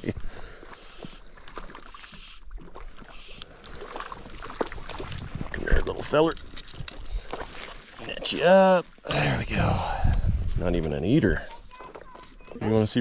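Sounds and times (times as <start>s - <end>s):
fish splashing at water surface: 0.2s - 8.7s.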